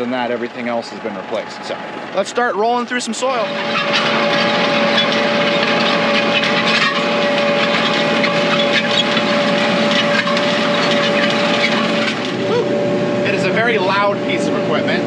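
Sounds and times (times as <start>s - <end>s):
steel discs grinding through rocky soil: 3.1s - 12.4s.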